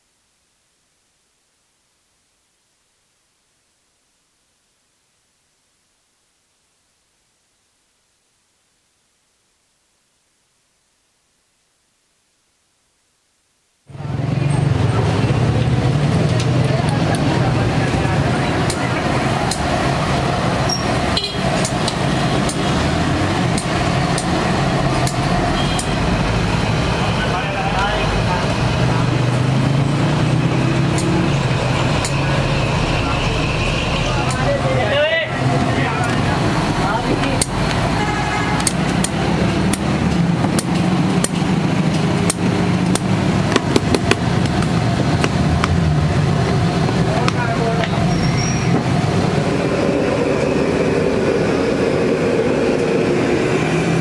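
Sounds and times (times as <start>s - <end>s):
low rumble of street traffic: 13.9s - 54.0s.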